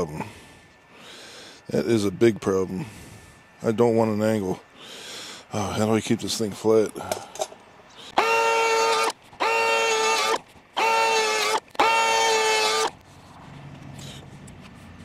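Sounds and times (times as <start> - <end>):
power planer motor whining: 8.1 - 13.0.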